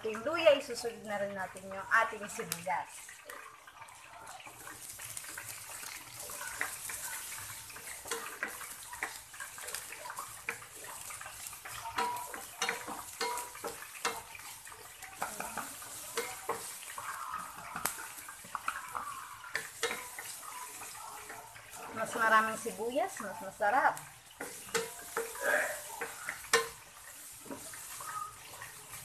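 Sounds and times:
onion sizzling in hot oil: 0.0s - 29.0s
wooden spatula scraping a pan: 0.0s - 29.0s.

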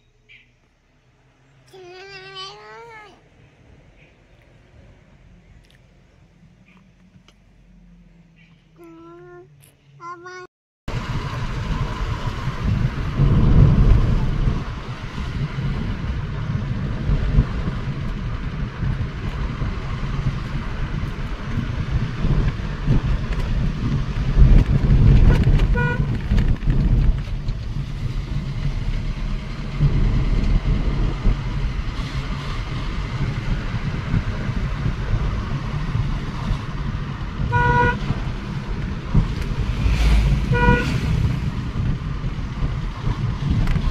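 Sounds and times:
car interior road rumble: 0.0s - 43.9s
vehicle horn toot: 25.3s - 26.2s, 37.5s - 38.1s, 40.5s - 41.1s.

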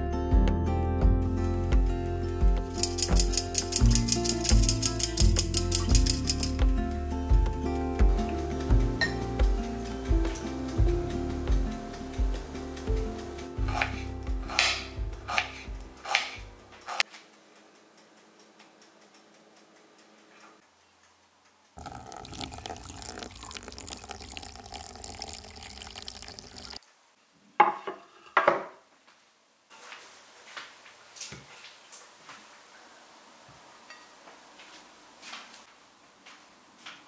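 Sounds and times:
water pouring into glass mug: 21.8s - 26.8s.

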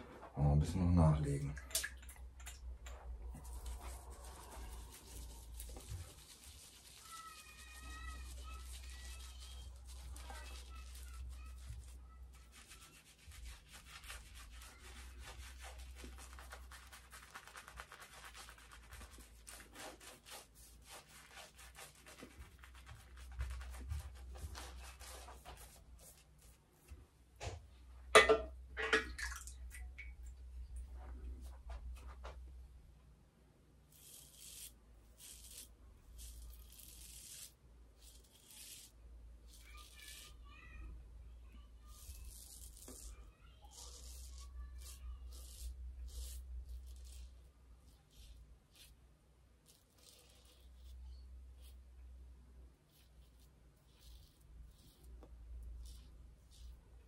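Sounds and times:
shaving brush scrubbing lather: 3.4s - 26.9s, 33.9s - 40.4s, 41.8s - 49.0s, 49.6s - 51.9s, 52.7s - 57.0s.

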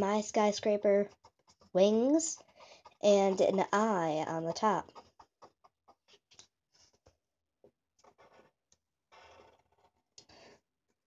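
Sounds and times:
pencil scratching on paper: 0.6s - 4.0s.

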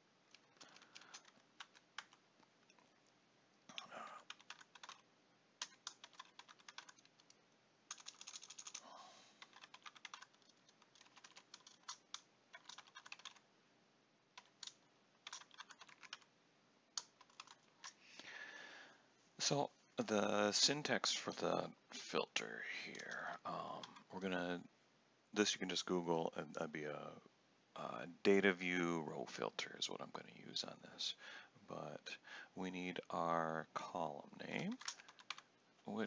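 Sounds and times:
keyboard typing: 0.3s - 2.9s, 3.7s - 5.0s, 5.6s - 13.4s, 14.4s - 16.3s, 17.0s - 18.0s, 22.9s - 24.0s, 34.7s - 35.4s.

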